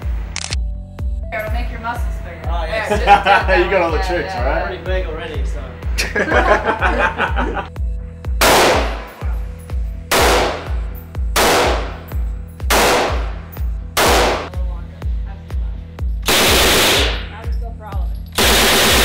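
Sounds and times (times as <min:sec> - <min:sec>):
background music with low beat: 0:00.0 - 0:19.0
loud rifle gunshots: 0:08.4 - 0:09.2, 0:10.1 - 0:12.1, 0:12.7 - 0:14.6, 0:16.3 - 0:17.3, 0:18.4 - 0:19.0.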